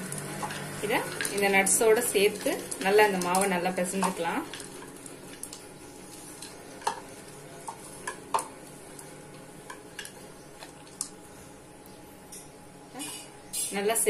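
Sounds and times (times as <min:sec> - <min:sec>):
dough squelching: 0:00.0 - 0:11.2.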